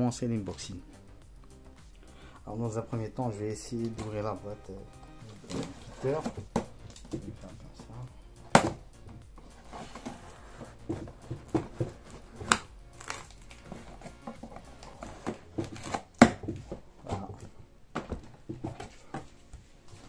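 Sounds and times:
knocks and scrapes on cardboard box: 5.4 - 7.6, 8.6 - 17.4.

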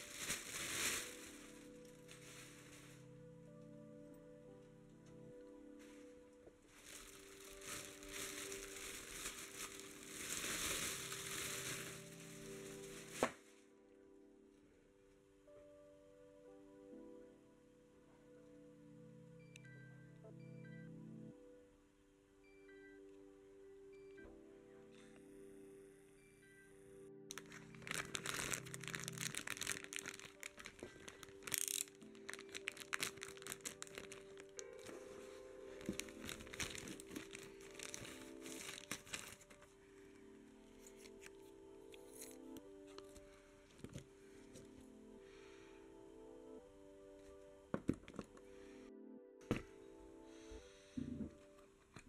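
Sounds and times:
plastic bag crinkling: 0.0 - 3.1, 6.7 - 13.4, 27.3 - 39.8, 40.7 - 44.0
background music: 0.0 - 52.0.

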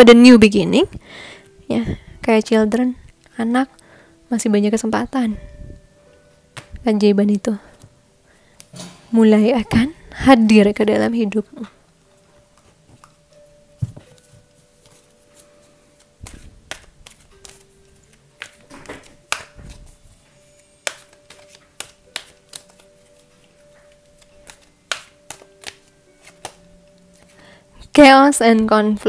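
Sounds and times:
faint background music: 0.0 - 29.0
cards being shuffled: 13.8 - 27.4.

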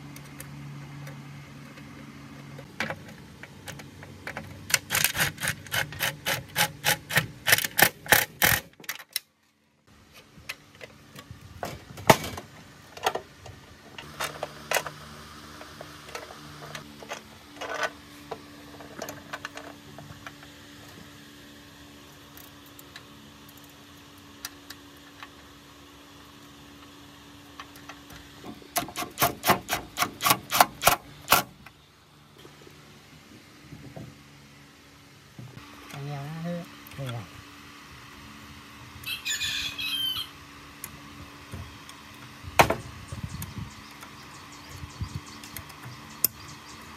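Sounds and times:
impact driver hammering: 28.8 - 31.5.

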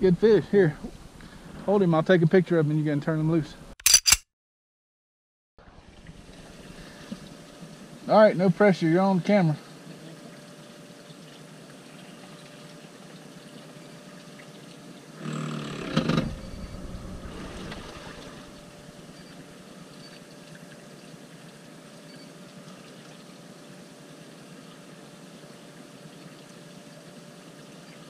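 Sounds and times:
water lapping against hull: 16.6 - 21.6.

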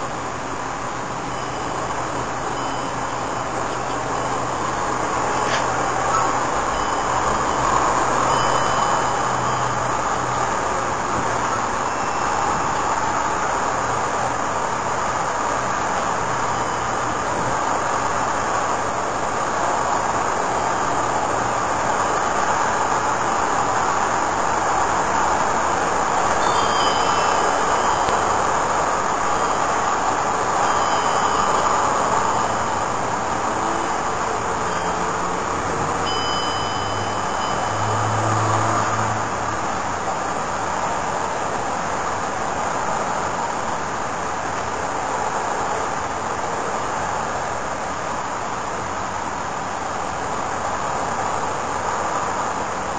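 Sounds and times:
steady rushing noise: 0.0 - 52.9
faint high chirps: 26.4 - 28.4.

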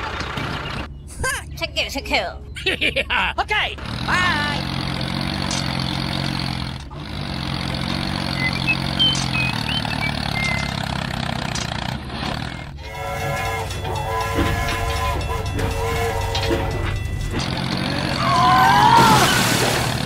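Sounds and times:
low engine drone: 3.8 - 20.0
train horn blasts: 12.8 - 18.2.

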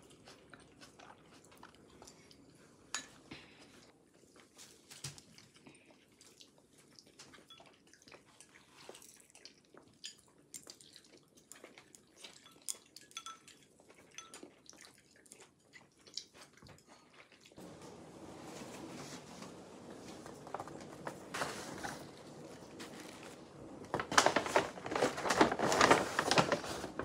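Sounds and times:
dishes and utensils clinking: 2.0 - 3.2, 12.2 - 14.5.

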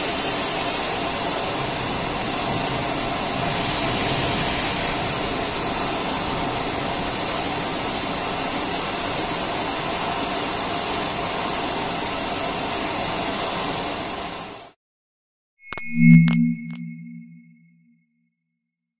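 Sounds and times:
machine hiss: 0.0 - 6.2
faint high whine: 15.6 - 17.8.

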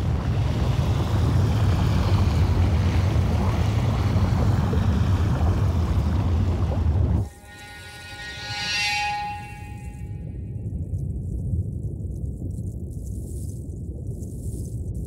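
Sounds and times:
rushing hissing water: 0.0 - 7.4
deep underwater rumble: 0.0 - 7.5, 9.3 - 15.0.

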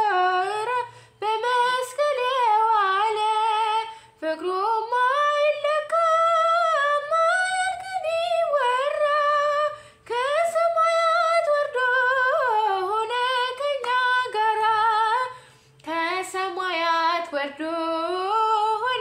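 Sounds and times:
woman singing unaccompanied: 0.0 - 19.0
singer breathing: 0.9 - 1.2, 9.8 - 10.0, 15.3 - 15.8.

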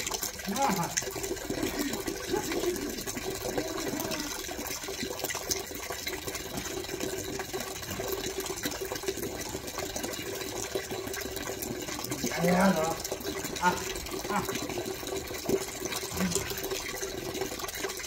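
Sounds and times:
wet lather squelching: 0.0 - 5.0, 12.0 - 16.9.

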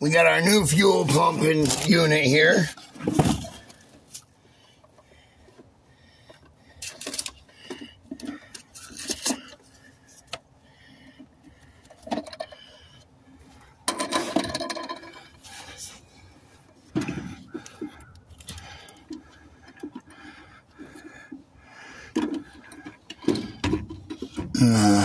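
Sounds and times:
rustling clatter: 1.0 - 4.2, 4.9 - 10.4, 13.8 - 21.4
plastic parts clicks and knocks: 13.9 - 15.2, 22.1 - 24.6.

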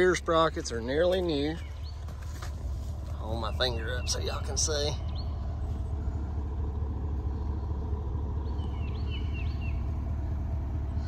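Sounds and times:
diesel engine idling: 0.0 - 11.0
bird chirps: 1.3 - 2.3, 3.2 - 6.4, 7.2 - 11.0.

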